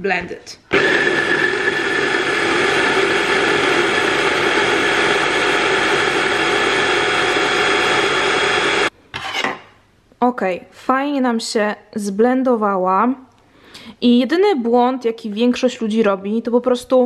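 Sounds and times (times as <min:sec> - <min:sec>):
hand blender motor running: 0:00.7 - 0:08.9.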